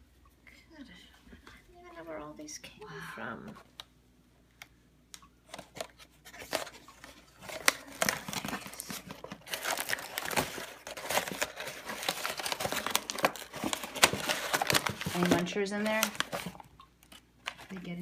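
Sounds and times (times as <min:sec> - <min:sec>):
tea packaging crinkling and rustling: 0:05.4 - 0:18.0.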